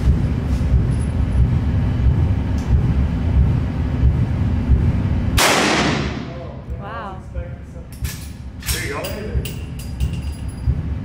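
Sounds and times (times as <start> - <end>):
steady low rumble: 0.0 - 11.0
rifle shot echoing: 5.4 - 6.4.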